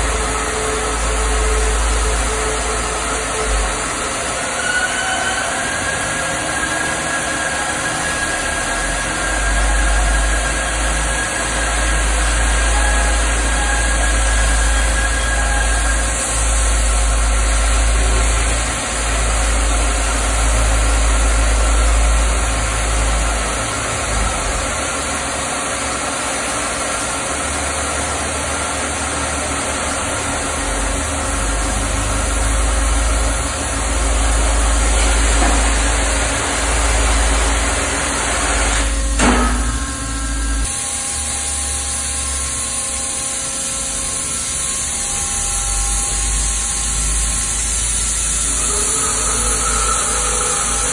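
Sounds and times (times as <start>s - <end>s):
low machine hum: 0.0s - 50.9s
metal clank: 39.1s - 40.3s
cutting torch hissing: 40.0s - 50.9s.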